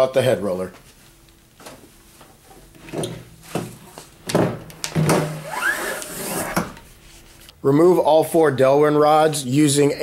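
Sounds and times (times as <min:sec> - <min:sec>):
short rising squeak: 0:05.4 - 0:06.6.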